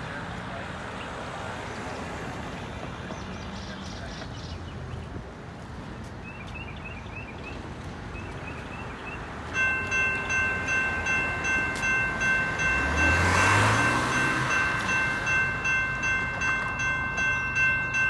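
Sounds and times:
birds chirping: 0.9 - 18.0
railroad crossing electronic bells: 6.3 - 18.0.

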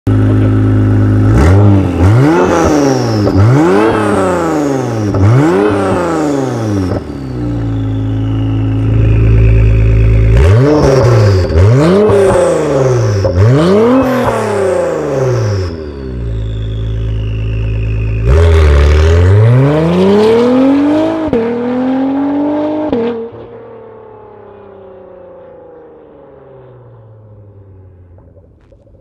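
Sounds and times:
car engine revving: 0.1 - 25.1
high falling turbo whistle: 5.5 - 11.5, 14.9 - 18.6.

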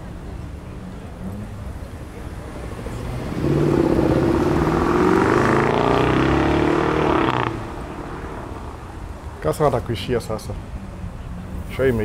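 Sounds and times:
car engine revving past: 2.6 - 8.6.

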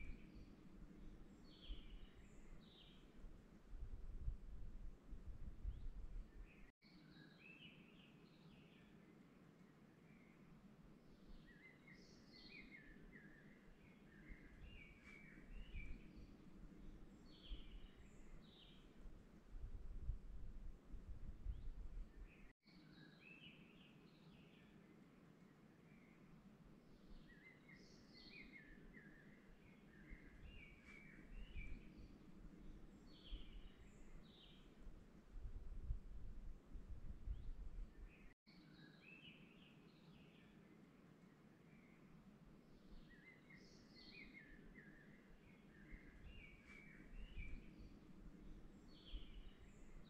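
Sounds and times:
songbirds chirping: 0.0 - 50.0
birds chirping: 42.9 - 50.0.

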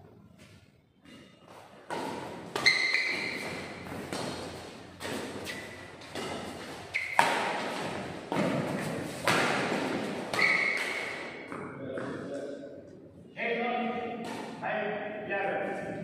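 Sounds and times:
shoes squeaking on court: 0.3 - 12.3
racket hitting shuttlecock: 1.0 - 12.2, 14.1 - 14.6.

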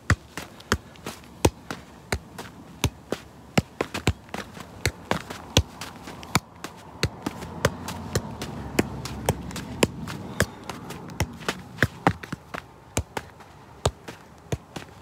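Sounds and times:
football thuds from juggling: 3.6 - 6.4, 7.0 - 10.5, 11.2 - 15.0.

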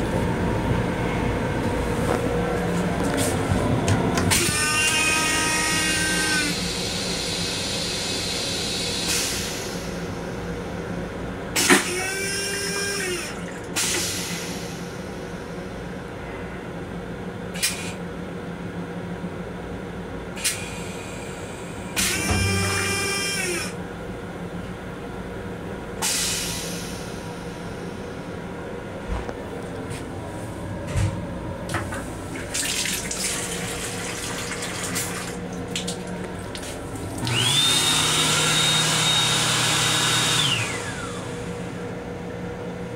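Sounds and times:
steady low hum: 0.0 - 4.4, 23.7 - 37.6
toilet flush motor whine: 4.1 - 9.8, 11.6 - 14.6, 20.7 - 23.8, 31.7 - 41.9.

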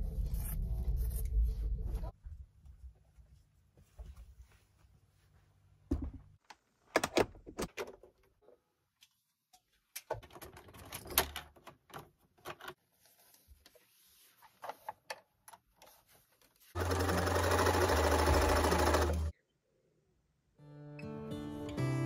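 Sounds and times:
sewing machine stitching: 16.8 - 19.3.

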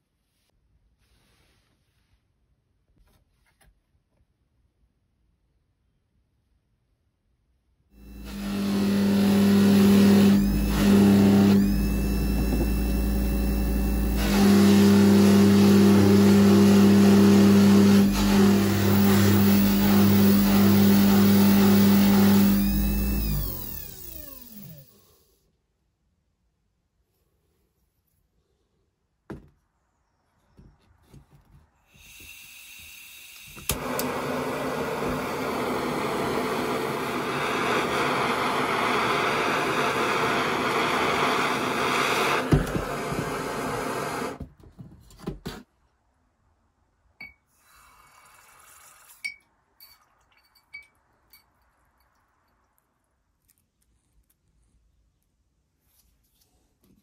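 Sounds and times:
gas hissing: 31.9 - 44.4
blowtorch ignition click: 33.3 - 34.2
blowtorch flame rushing: 33.7 - 44.4
faint metal clinks: 49.3 - 52.6.

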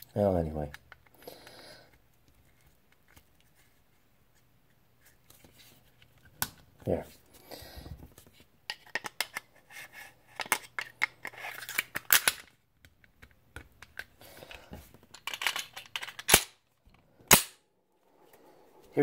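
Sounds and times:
pistol parts clicking and scraping: 0.6 - 3.2, 8.7 - 9.5, 10.3 - 16.6.

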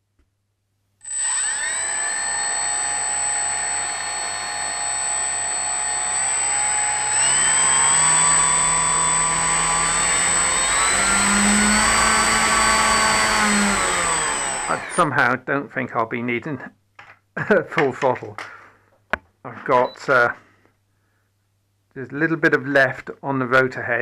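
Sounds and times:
model aircraft electric motor whine: 1.0 - 15.1.

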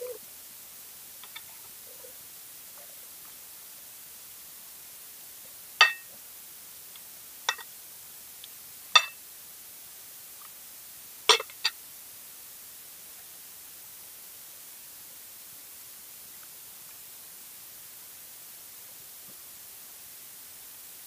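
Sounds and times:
faint ticks: 1.2 - 3.4
cutlery clinking against plate: 5.8 - 6.1, 9.0 - 9.2, 11.3 - 11.8.

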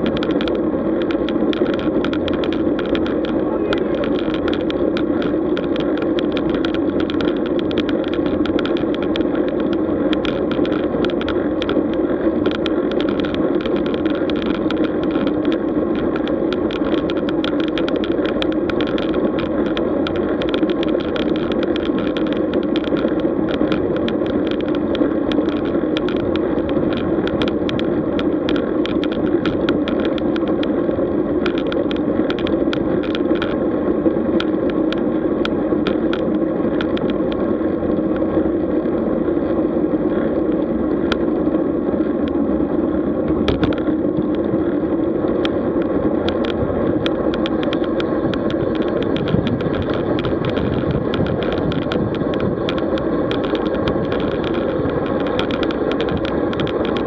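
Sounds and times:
bicycle tyre noise: 0.0 - 57.0
rushing wind: 0.0 - 57.0
small clicks and rattles: 0.0 - 57.0.

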